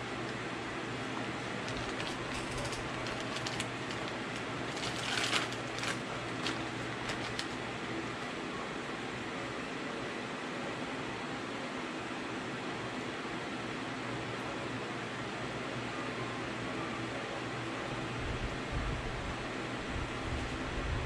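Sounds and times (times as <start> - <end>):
plastic bag crinkling: 1.4 - 8.3.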